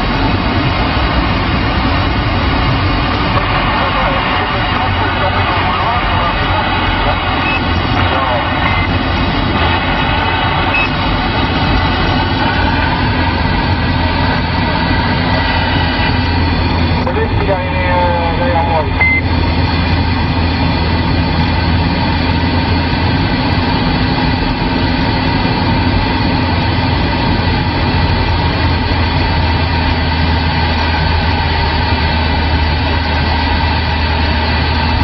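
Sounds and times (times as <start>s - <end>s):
vehicle drone inside cab: 0.0s - 35.0s
radio hiss: 3.3s - 12.2s, 14.0s - 19.3s
thin radio whistles: 7.1s - 9.0s, 10.6s - 11.0s.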